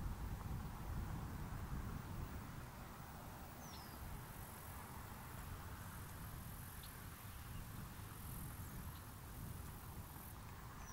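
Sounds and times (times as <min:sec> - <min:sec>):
light hiss: 0:00.0 - 0:10.9
faint bird chirps: 0:03.6 - 0:04.0.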